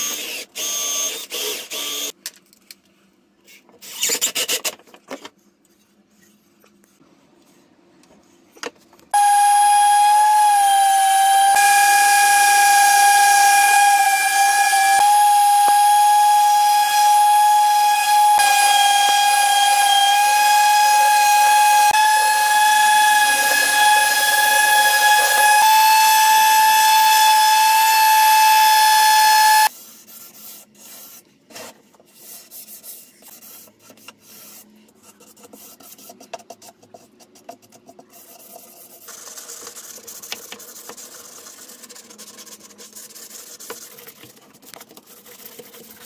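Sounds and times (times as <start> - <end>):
cordless drill whirring: 0.0 - 2.1
orbital sander whining: 9.2 - 29.7.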